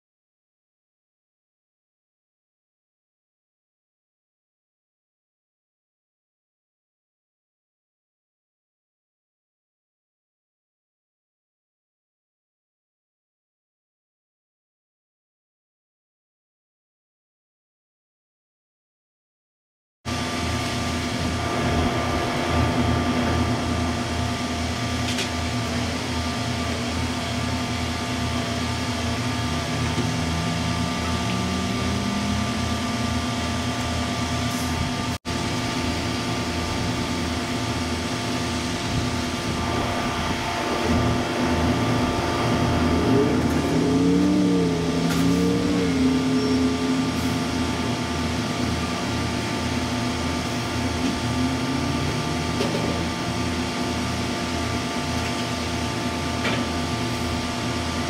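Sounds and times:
diesel engines throbbing: 20.1s - 58.0s
wavering tone: 27.7s - 34.4s, 39.6s - 54.9s.

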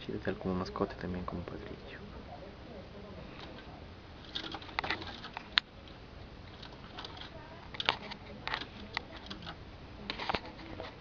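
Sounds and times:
low background hiss: 0.0s - 11.0s
light clicks and rustles: 3.3s - 11.0s.

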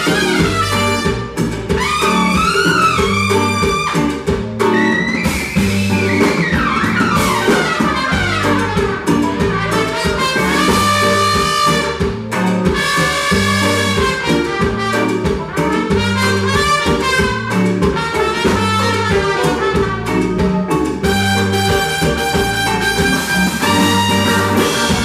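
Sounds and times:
drum kit: 0.0s - 25.0s
low bass line: 0.0s - 25.0s
trumpet long held notes: 6.7s - 12.1s, 21.1s - 25.0s.

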